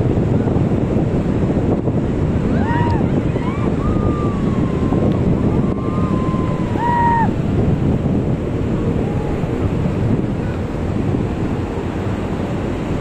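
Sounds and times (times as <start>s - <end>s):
breaking surf: 0.0s - 13.0s
wind buffeting microphone: 0.0s - 13.0s
people crying out: 2.5s - 7.3s.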